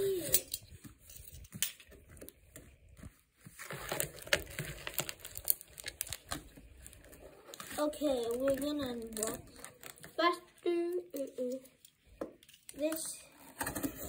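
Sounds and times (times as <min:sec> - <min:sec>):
cardboard packaging crinkling: 0:00.6 - 0:11.2.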